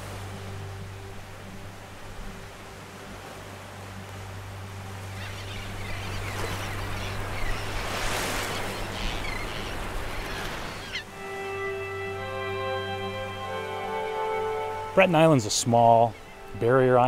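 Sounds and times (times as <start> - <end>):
low steady drone: 0.0 - 7.4, 11.1 - 17.0
surf-like rushing noise: 0.0 - 17.0.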